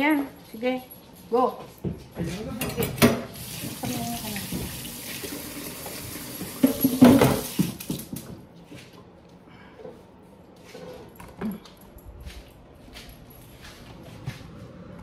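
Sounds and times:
tap running into sink: 0:03.0 - 0:08.2
kitchenware knocking: 0:06.6 - 0:07.6.

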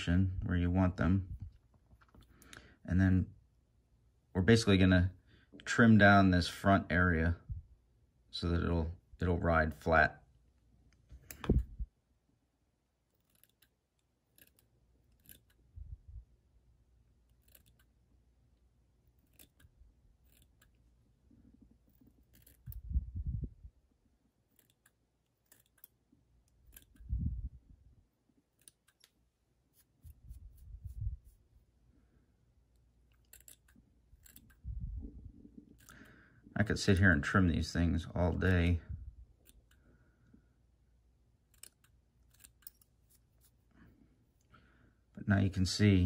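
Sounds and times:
scissors snipping: 0:13.1 - 0:15.6, 0:17.3 - 0:17.9, 0:19.1 - 0:20.8, 0:21.9 - 0:22.8, 0:24.4 - 0:27.1, 0:28.6 - 0:30.6, 0:33.1 - 0:34.6, 0:41.5 - 0:43.6.

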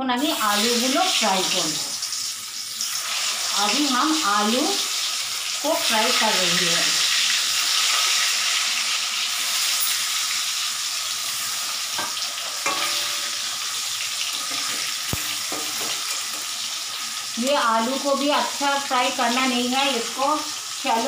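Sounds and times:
potatoes sizzling in hot oil: 0:00.0 - 0:21.0
light knocks in pan: 0:14.5 - 0:16.4.

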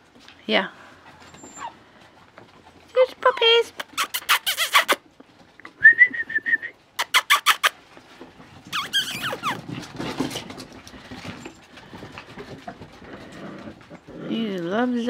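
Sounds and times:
puppies yipping and squealing: 0:01.2 - 0:01.8, 0:03.0 - 0:05.1, 0:07.0 - 0:07.9, 0:08.6 - 0:10.0.

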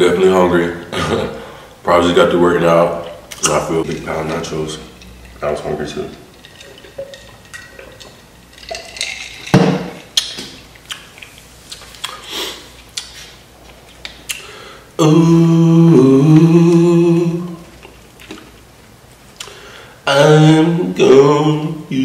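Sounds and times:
eating and handling sounds: 0:03.0 - 0:14.6, 0:16.3 - 0:19.7
man humming: 0:15.0 - 0:17.7.

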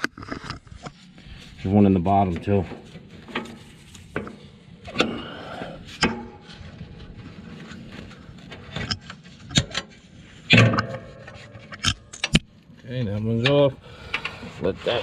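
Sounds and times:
sharp clicks and knocks: 0:08.4 - 0:12.5.

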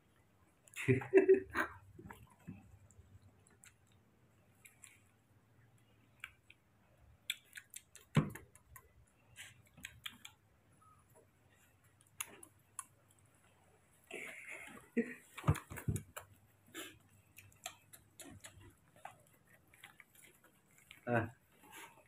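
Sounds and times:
monkey scrambling taps and scuffs: 0:15.2 - 0:16.4.

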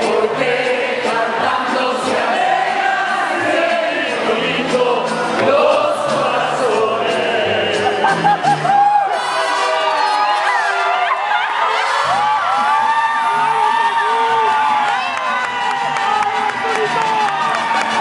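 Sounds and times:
group of singers singing: 0:00.0 - 0:10.8
mariachi band playing: 0:00.0 - 0:18.0.

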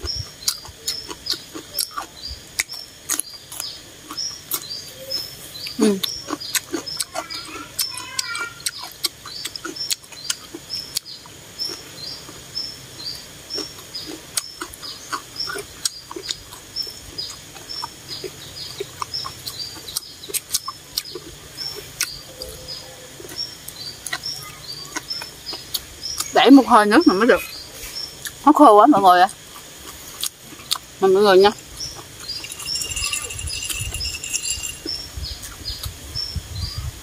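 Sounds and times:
chewing and slurping: 0:00.0 - 0:12.5, 0:13.5 - 0:22.2, 0:29.3 - 0:31.0, 0:31.6 - 0:35.0
short high chirp: 0:32.3 - 0:35.0.

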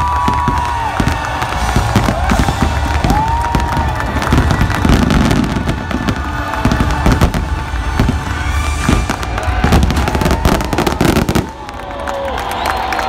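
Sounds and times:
music playing: 0:00.0 - 0:12.8
fireworks bursting and crackling: 0:00.0 - 0:12.9.

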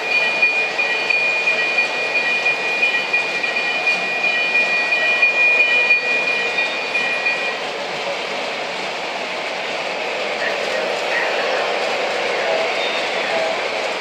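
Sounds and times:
steady high tone: 0:00.0 - 0:07.6
model train rumbling on track: 0:00.0 - 0:14.0.

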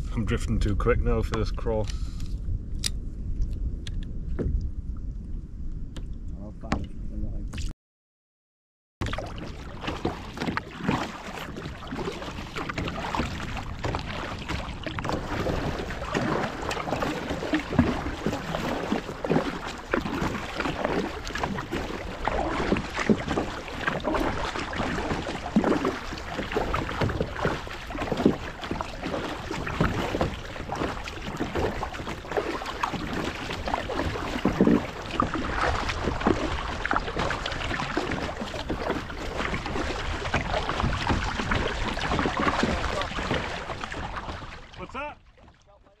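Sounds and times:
wind on microphone: 0:00.0 - 0:07.6
water slapping kayak hull: 0:09.0 - 0:46.0.

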